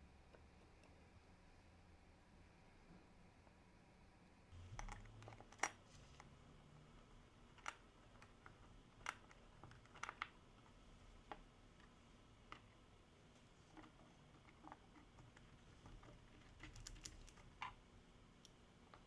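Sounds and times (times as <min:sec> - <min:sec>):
small metal parts clicking: 0:14.6 - 0:17.7.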